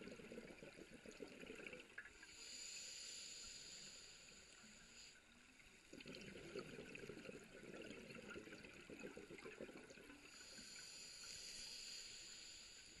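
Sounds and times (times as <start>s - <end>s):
exhaled bubbles burbling: 0.0s - 2.2s, 5.9s - 10.4s
regulator hiss on inhale: 2.2s - 5.7s, 10.2s - 13.0s.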